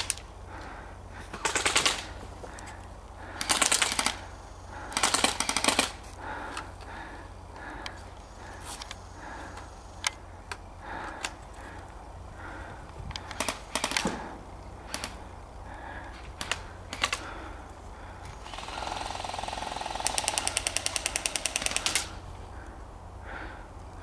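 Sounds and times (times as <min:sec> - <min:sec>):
airsoft gun full-auto burst: 0:01.4 - 0:02.2, 0:03.4 - 0:06.0, 0:13.3 - 0:15.2, 0:18.4 - 0:22.2
single sharp shot pops: 0:14.0 - 0:14.3
motor buzz: 0:18.3 - 0:22.3.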